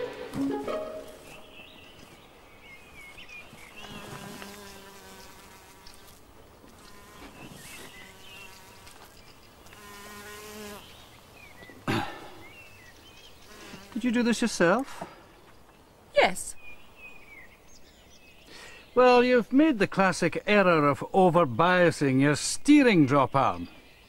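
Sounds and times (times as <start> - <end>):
insect buzzing: 3.5 - 11.4, 12.6 - 14.1.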